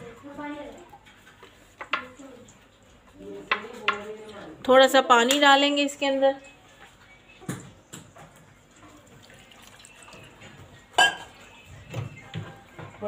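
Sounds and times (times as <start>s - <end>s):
water pouring into steel jar: 9.2s - 10.4s.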